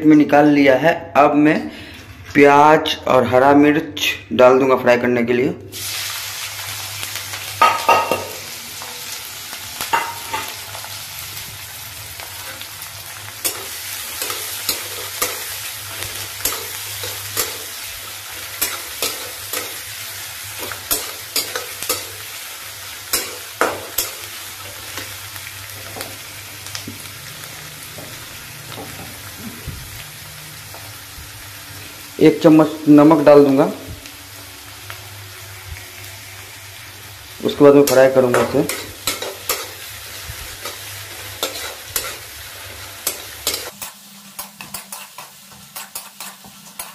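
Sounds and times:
onions sizzling in hot oil: 5.7 - 46.9
spatula scraping and clinking pan: 23.1 - 24.3, 41.4 - 42.2, 43.0 - 46.9.

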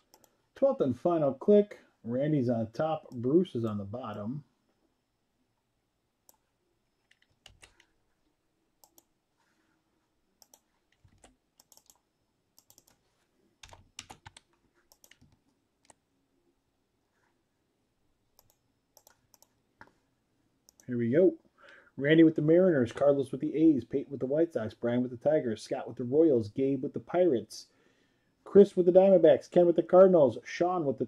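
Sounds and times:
keyboard and mouse clicks: 0.0 - 0.4, 6.3 - 7.9, 8.8 - 9.1, 10.4 - 12.0, 12.6 - 13.0, 13.6 - 16.0, 18.4 - 20.0, 20.7 - 20.9.

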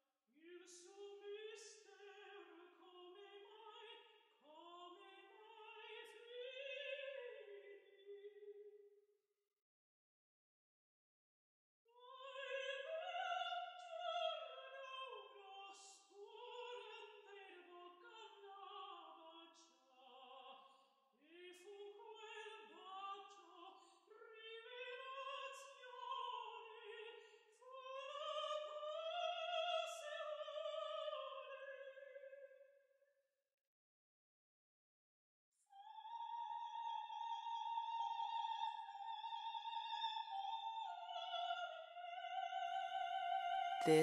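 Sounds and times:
operatic singing: 40.1 - 44.0.

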